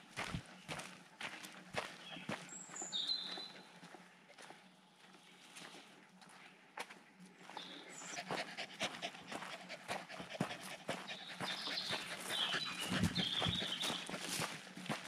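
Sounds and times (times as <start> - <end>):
footsteps crunching on a path: 0.0 - 15.0
dog panting: 8.0 - 14.4.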